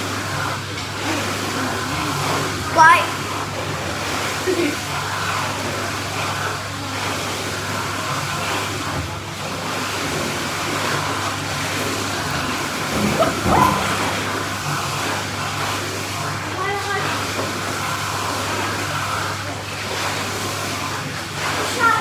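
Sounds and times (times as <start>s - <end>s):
water sloshing in pool: 0.0s - 22.0s
water splashing: 9.6s - 22.0s.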